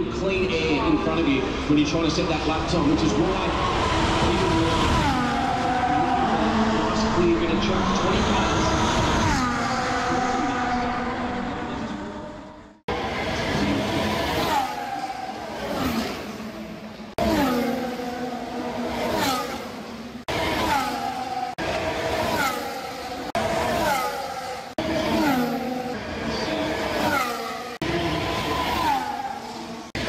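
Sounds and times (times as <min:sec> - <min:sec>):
racing cars screaming past: 0:03.1 - 0:12.1, 0:12.9 - 0:16.5, 0:20.3 - 0:30.0.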